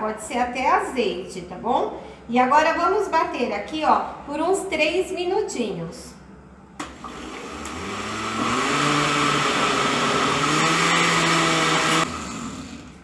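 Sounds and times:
blender motor mixing liquid: 6.8 - 13.0.

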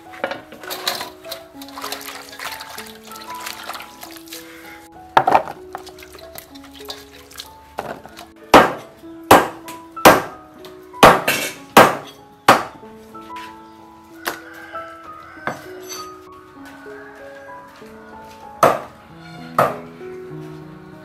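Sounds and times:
background music: 0.0 - 21.0
cleaver chopping on wooden block: 8.6 - 9.5, 10.1 - 10.3, 11.0 - 12.7.

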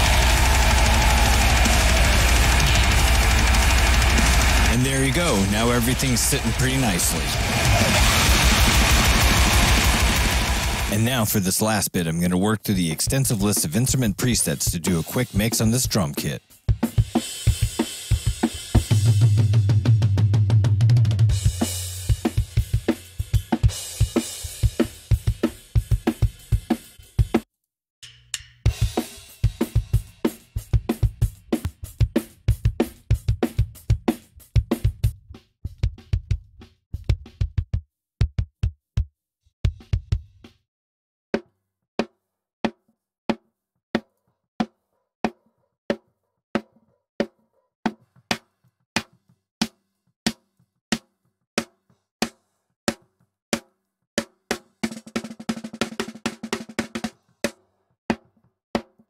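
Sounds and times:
drum kit playing: 0.0 - 11.7, 12.7 - 27.4, 28.4 - 38.5.

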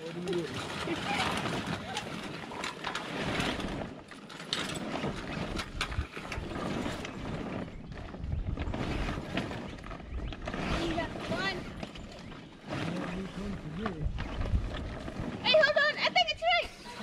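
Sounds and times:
rigging hardware clicking and rattling: 0.0 - 8.3
sailcloth rustling and crumpling: 0.0 - 17.0.

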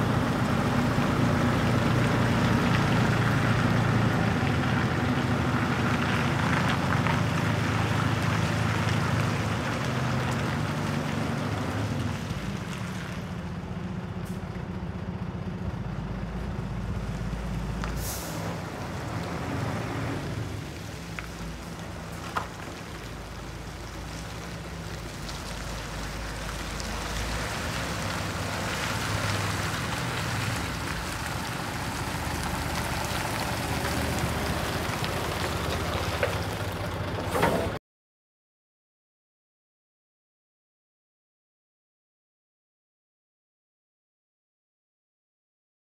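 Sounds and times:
diesel truck engine running: 0.0 - 37.8
tyres on gravel: 0.0 - 37.8
air brake hiss: 18.0 - 18.6.

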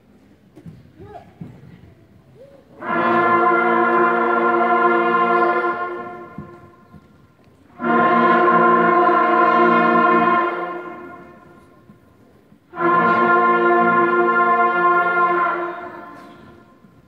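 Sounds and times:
band playing long held notes: 2.8 - 7.1, 7.7 - 17.0.

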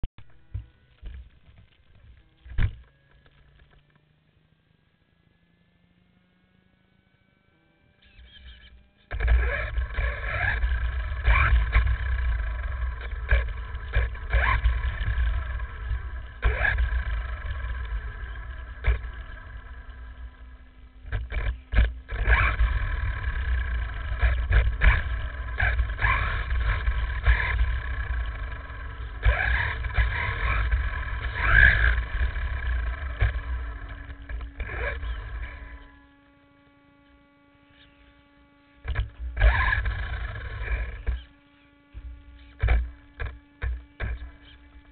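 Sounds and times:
electric motor whine: 0.2 - 44.9
knocks from bumps: 0.5 - 3.9, 42.0 - 44.9.

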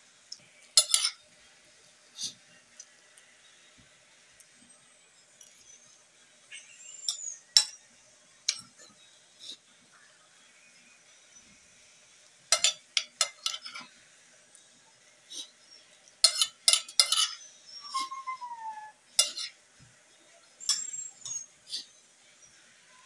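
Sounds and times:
cutlery clinking on ceramic plates: 0.7 - 1.2, 7.1 - 7.8, 8.5 - 8.8, 12.5 - 13.9, 16.2 - 17.4, 19.2 - 19.6, 20.6 - 21.4.

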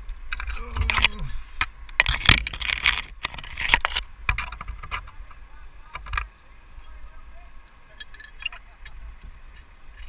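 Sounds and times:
rope scraping against branches: 0.5 - 4.1
metal rigging hardware clinking: 0.8 - 4.0, 6.8 - 10.0.

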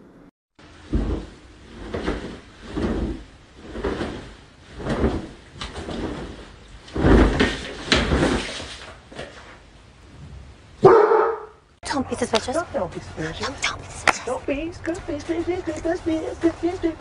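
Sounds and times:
quilt flapping whoosh: 0.8 - 8.9.

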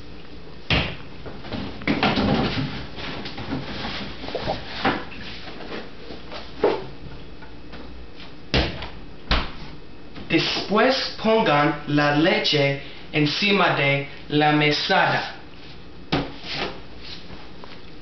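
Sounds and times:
refrigerator door knocks and clunks: 8.5 - 9.6.

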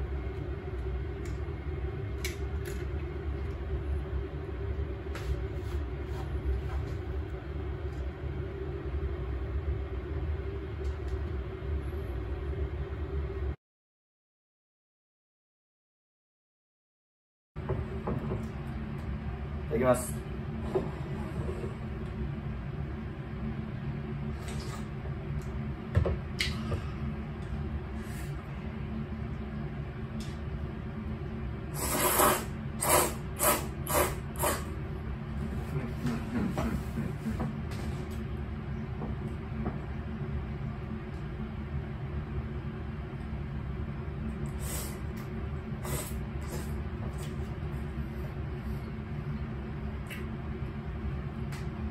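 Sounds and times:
constant hum: 0.0 - 13.6, 17.6 - 51.9
noodles being slurped: 31.8 - 34.7.

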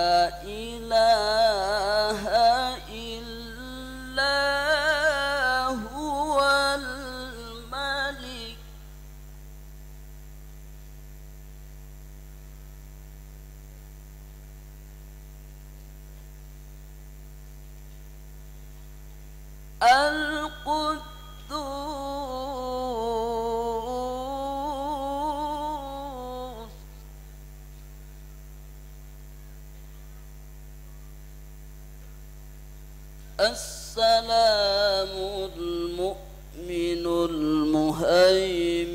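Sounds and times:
man chanting through microphone: 0.0 - 8.9, 19.8 - 27.0, 33.2 - 38.9
electrical mains hum: 0.0 - 38.9.

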